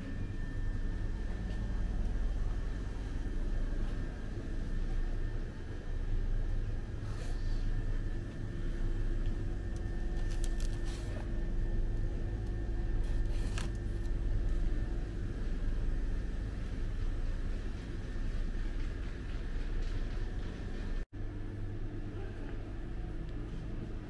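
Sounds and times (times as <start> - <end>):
ventilation rumble and hum: 0.0 - 24.0
plastic wrap crinkling: 10.1 - 10.9.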